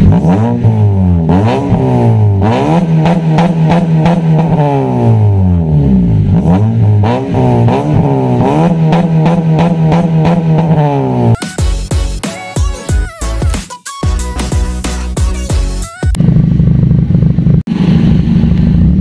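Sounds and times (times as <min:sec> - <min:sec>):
car engine revving: 0:00.0 - 0:11.4, 0:16.2 - 0:19.0.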